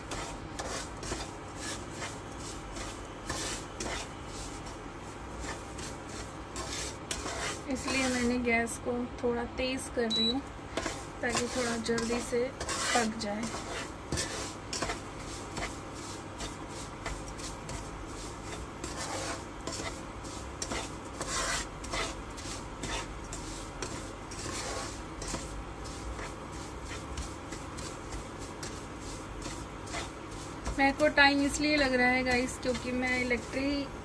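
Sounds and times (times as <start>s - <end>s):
wooden spatula scraping a wok: 0.0s - 8.5s, 10.2s - 34.0s.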